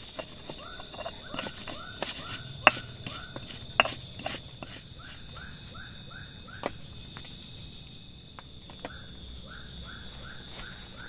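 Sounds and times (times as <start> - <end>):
frog calling: 0.0 - 7.3, 8.8 - 11.0
high insect drone: 0.0 - 11.0.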